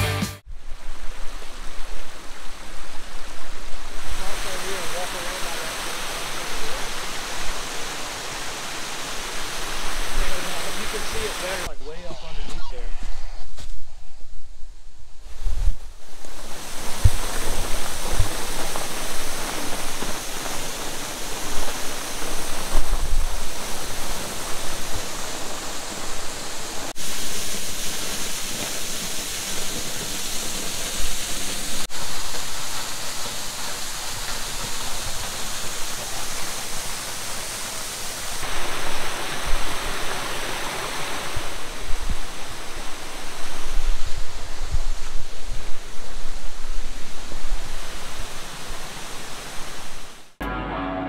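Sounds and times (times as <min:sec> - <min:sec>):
waterfall splashing into pool: 0:00.6 - 0:11.7, 0:16.1 - 0:50.4.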